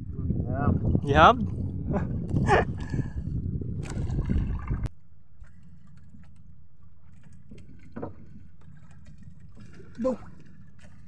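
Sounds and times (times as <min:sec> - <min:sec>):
wind buffeting microphone: 0:00.0 - 0:04.9
rush of wind and water: 0:00.0 - 0:11.0.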